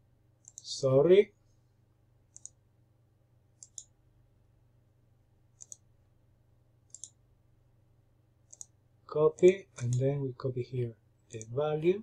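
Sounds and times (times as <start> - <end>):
faint low hum: 0.0 - 12.0
computer mouse buttons clicking: 0.4 - 0.7, 2.3 - 2.6, 3.6 - 4.0, 5.6 - 5.9, 6.9 - 7.2, 8.4 - 8.8, 11.3 - 11.5.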